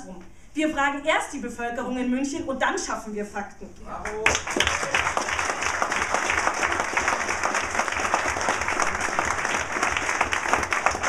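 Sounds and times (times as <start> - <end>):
audience applauding: 4.1 - 11.0.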